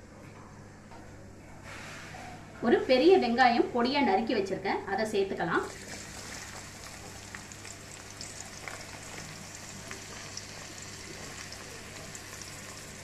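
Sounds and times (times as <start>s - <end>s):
onions sizzling in hot oil: 5.6s - 13.0s
small crackles of frying: 5.6s - 13.0s.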